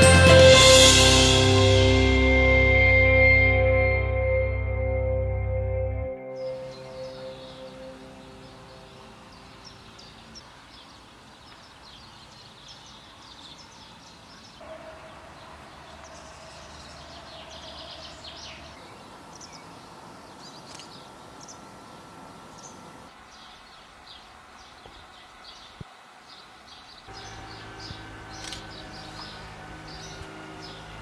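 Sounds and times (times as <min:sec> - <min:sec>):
small birds chirping: 0:06.4 - 0:31.0
soft steady background noise: 0:06.6 - 0:30.4.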